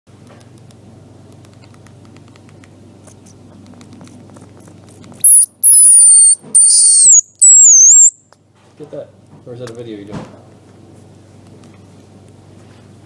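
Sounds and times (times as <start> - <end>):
faint low hum: 0.1 - 13.0
baby squirrel squealing: 5.2 - 8.1.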